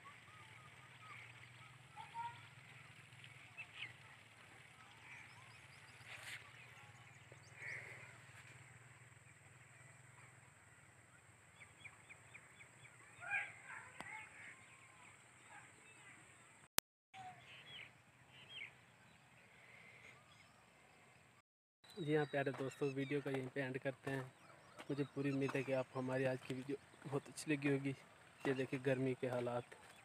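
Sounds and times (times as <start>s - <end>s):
faint bird calls: 0.0s - 16.5s.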